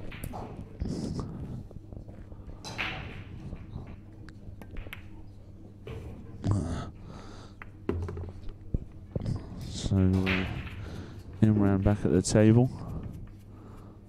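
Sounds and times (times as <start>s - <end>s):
pool balls knocking: 7.6s - 9.0s.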